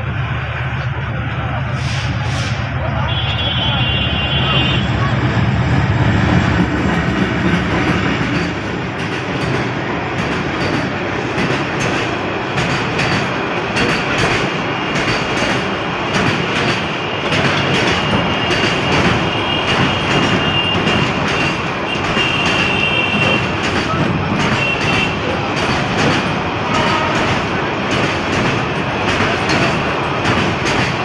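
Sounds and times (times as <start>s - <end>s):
diesel locomotive engine: 0.0s - 31.0s
train wheels clacking on rails: 0.2s - 31.0s.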